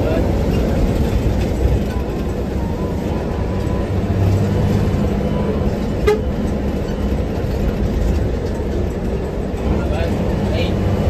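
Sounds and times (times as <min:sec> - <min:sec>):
bus diesel engine drone: 0:00.0 - 0:11.0
road noise: 0:00.0 - 0:11.0
bus horn: 0:05.0 - 0:06.6.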